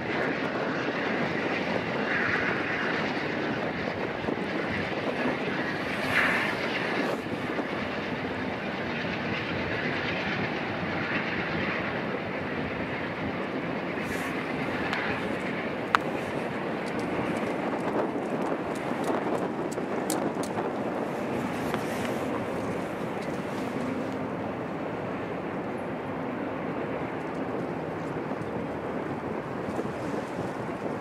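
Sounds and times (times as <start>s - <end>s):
diesel locomotive engine: 0.0s - 31.0s.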